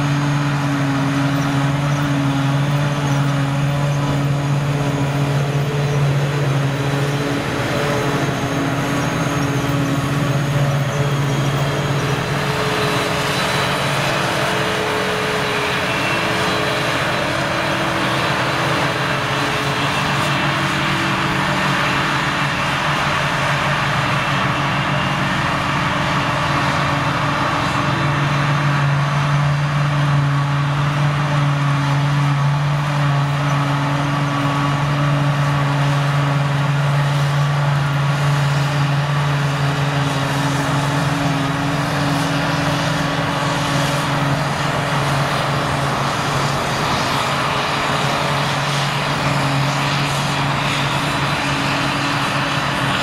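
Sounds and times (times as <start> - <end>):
tractor running: 0.0 - 53.0
forage harvester chopping grass: 28.8 - 53.0.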